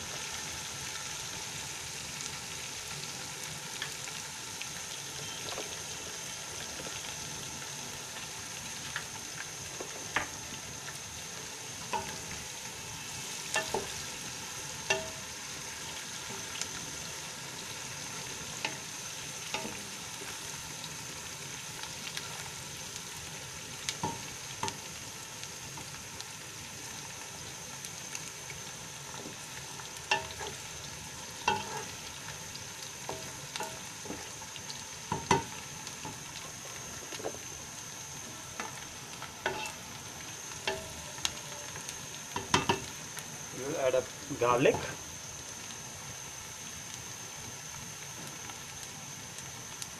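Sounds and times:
onions sizzling in oil: 0:00.0 - 0:49.9
spatula scraping a pot: 0:31.5 - 0:32.0, 0:39.5 - 0:39.8.

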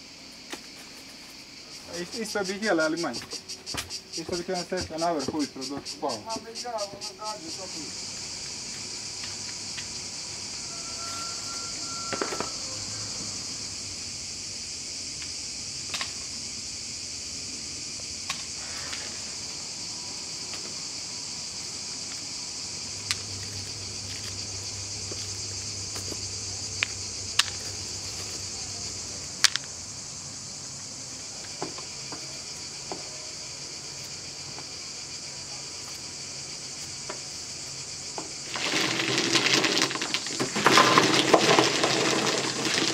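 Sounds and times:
cicadas buzzing: 0:00.0 - 0:42.9
nuts dropping into plastic crates: 0:25.9 - 0:29.8, 0:38.2 - 0:42.9.

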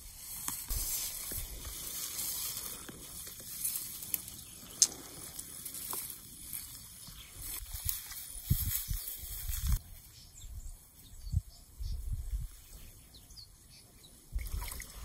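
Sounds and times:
wind rumbling on microphone: 0:07.0 - 0:13.0, 0:14.2 - 0:15.0.

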